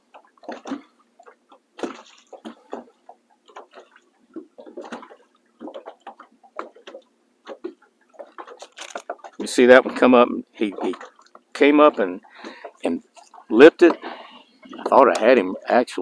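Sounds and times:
small waves lapping against hull: 0.0s - 16.0s.

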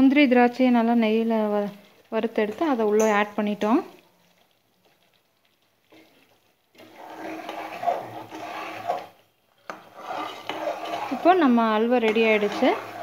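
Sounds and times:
metal ladle scraping a pan: 5.9s - 13.0s.

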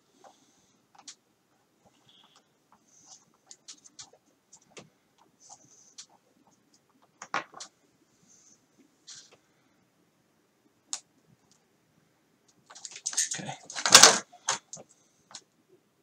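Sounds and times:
soft clicks and scratches: 0.1s - 9.5s.

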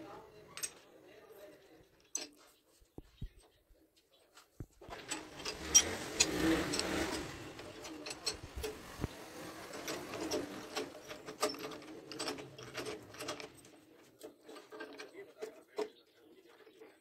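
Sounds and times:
metallic clicks and rattling: 0.4s - 0.8s, 1.8s - 2.5s, 4.8s - 16.0s.

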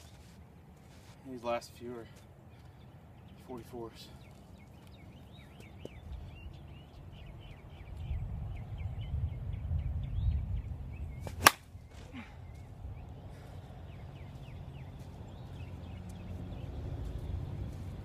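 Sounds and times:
bat hitting softball: 11.2s - 11.7s.

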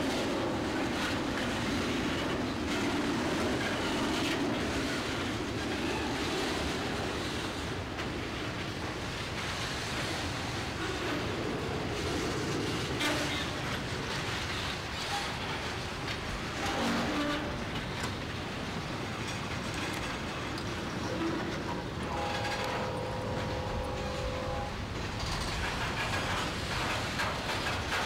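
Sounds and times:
train rail noise: 0.0s - 28.0s
train horn chord: 22.1s - 24.8s.

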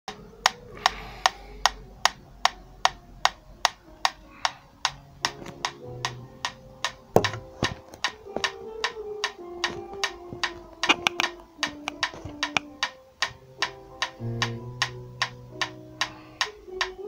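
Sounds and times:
metronome ticking: 0.1s - 17.0s
electric guitar notes: 13.6s - 15.6s.

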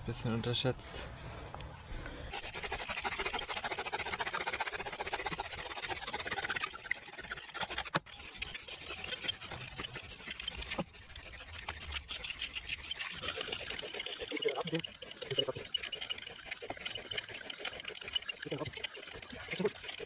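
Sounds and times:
bow drill grinding and squeaking: 5.4s - 20.0s.

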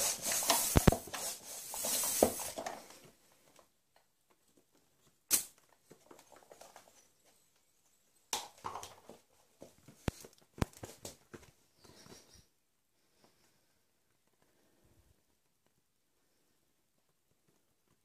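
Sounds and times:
rustles and scrapes on wooden floor: 0.0s - 3.7s.

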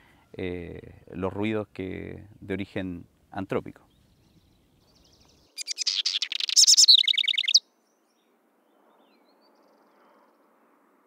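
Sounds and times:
house wren singing: 5.0s - 7.6s.

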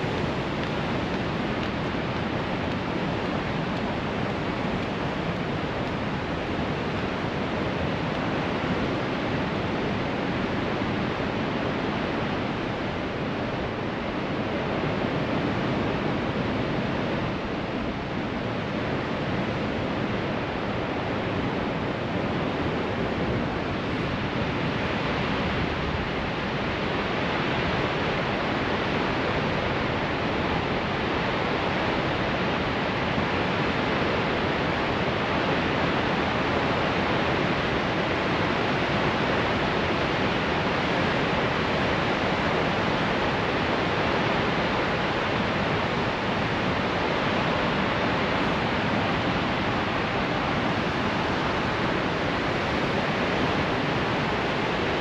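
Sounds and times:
waterfall rushing: 26.4s - 55.0s.

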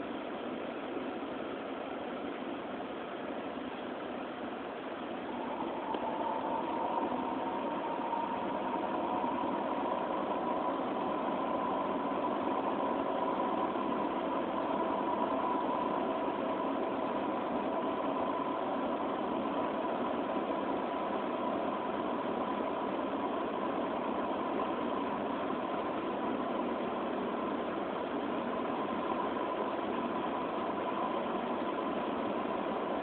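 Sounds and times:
engine humming steadily: 0.0s - 33.0s.

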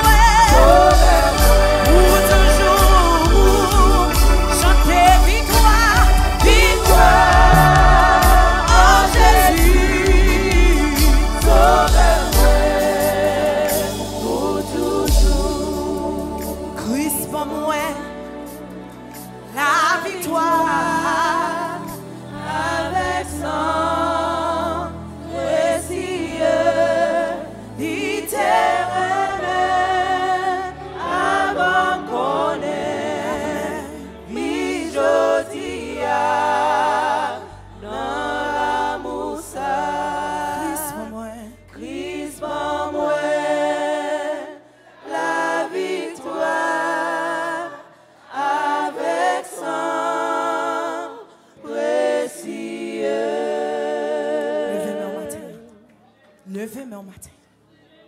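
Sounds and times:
woman singing lead: 0.0s - 12.7s, 40.5s - 42.1s
choir singing hymn: 0.0s - 56.0s
low bass: 5.7s - 12.6s.

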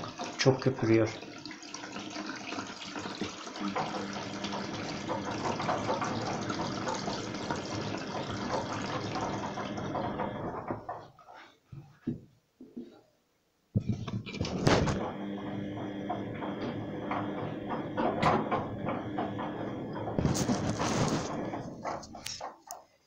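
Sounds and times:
water pouring and splashing: 0.0s - 11.0s, 18.8s - 22.5s.

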